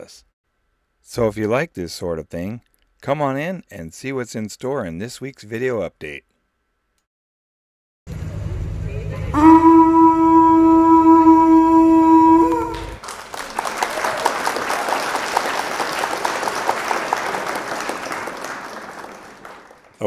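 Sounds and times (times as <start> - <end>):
long horn blast: 9.3 - 13.0
crowd applauding: 12.4 - 20.0.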